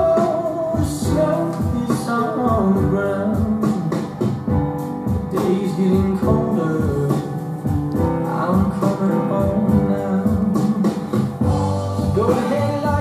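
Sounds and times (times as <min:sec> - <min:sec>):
song with singing and guitar: 0:00.0 - 0:13.0.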